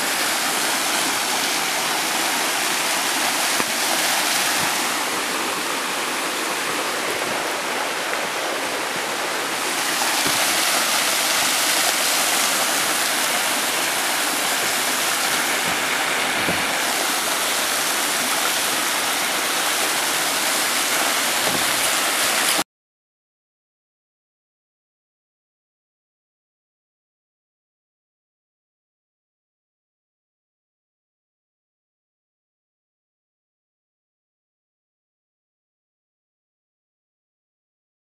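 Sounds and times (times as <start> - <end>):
waterfall rushing: 0.0 - 22.6.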